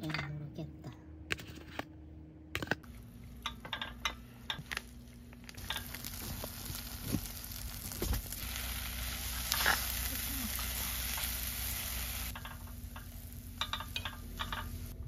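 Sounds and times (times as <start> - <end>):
fried rice sizzling in a pot: 5.6 - 15.0.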